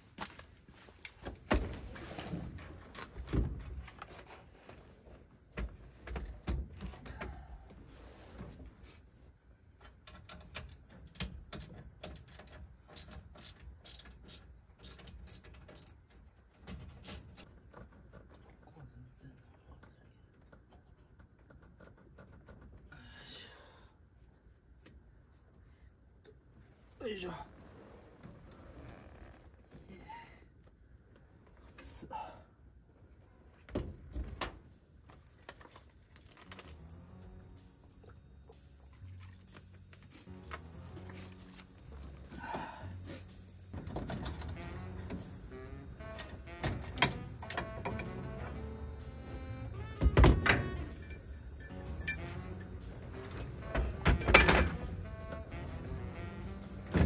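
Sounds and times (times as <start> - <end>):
ratchet wrench clicking: 11.6 - 16.0.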